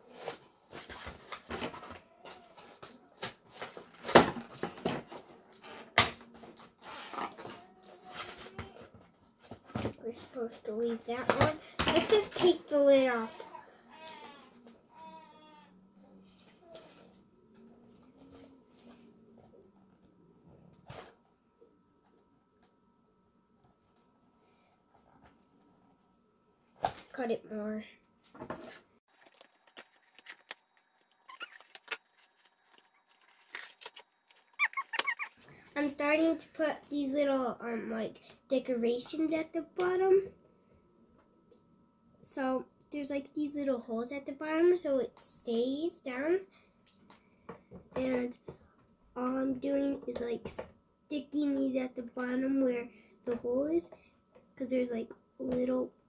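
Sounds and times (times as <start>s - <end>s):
cardboard and plastic rustling: 0.0s - 14.2s, 28.3s - 35.6s
toy packaging being handled: 29.1s - 35.5s.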